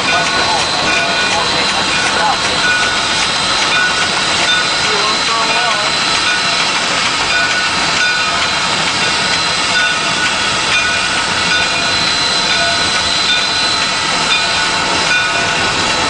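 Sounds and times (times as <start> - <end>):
steam hiss: 0.0 - 16.0.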